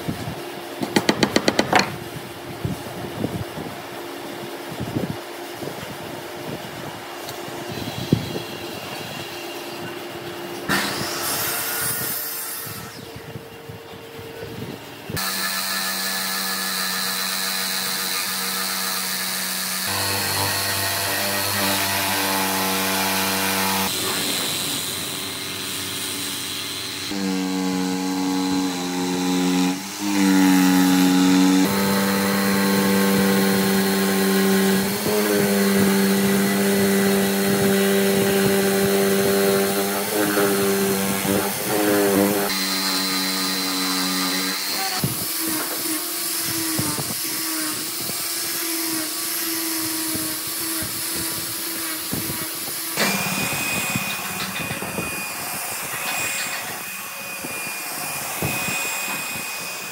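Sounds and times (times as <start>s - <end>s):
jigsaw cutting wood: 0.9s - 2.0s, 16.0s - 24.0s, 27.1s - 55.2s.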